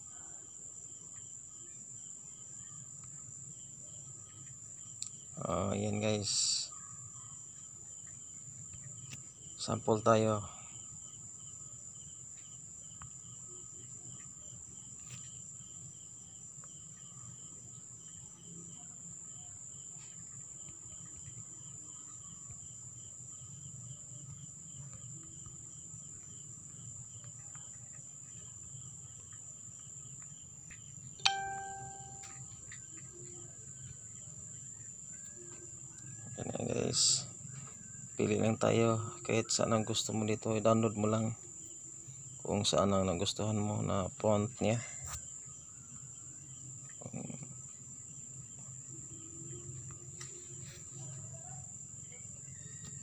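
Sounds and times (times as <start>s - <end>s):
insects chirping: 0.0s - 53.0s
sharp knock with ringing tone: 31.2s - 32.5s.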